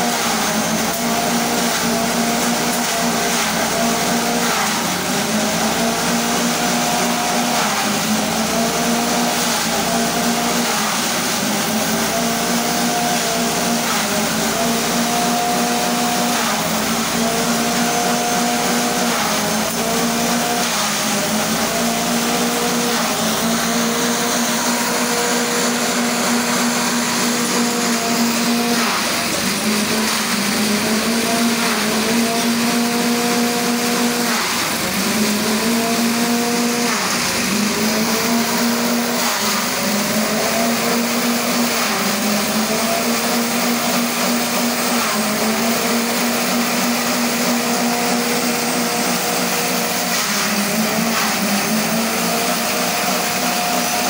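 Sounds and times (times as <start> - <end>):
small engine running: 0.0 - 54.0
stalks being shredded: 0.8 - 54.0.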